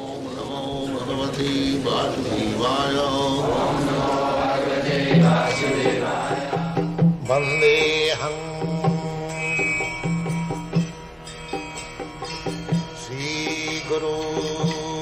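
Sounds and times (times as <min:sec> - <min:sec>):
chanted mantra over instruments: 0:00.0 - 0:10.9, 0:12.6 - 0:15.0.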